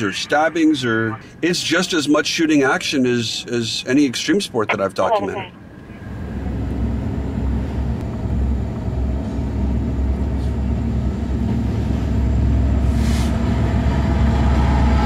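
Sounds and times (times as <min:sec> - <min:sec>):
car engine and road rumble: 0:04.2 - 0:15.0.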